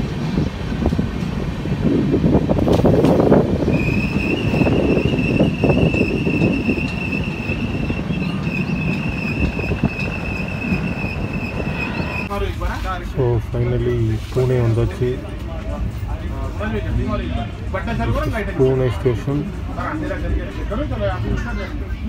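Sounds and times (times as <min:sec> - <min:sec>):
train wheels rumbling: 0:00.0 - 0:22.0
steel wheels squealing on rails: 0:03.7 - 0:12.4.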